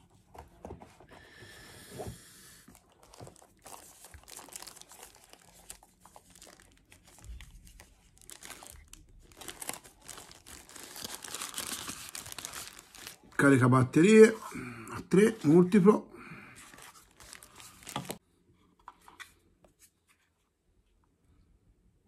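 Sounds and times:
packaging crinkling and rustling: 2.7s - 13.4s, 16.6s - 18.2s.

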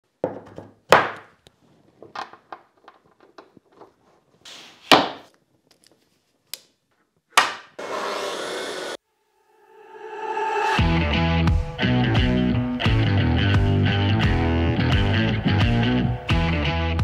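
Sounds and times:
rushing noise: 9.4s - 11.7s.

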